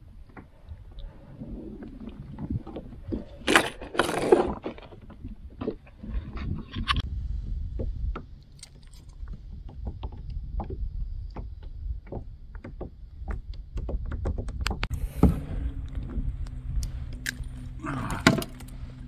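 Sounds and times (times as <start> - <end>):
wind rumbling on microphone: 0.0 - 19.0
clicks and knocks from plastic kayak: 7.7 - 16.2.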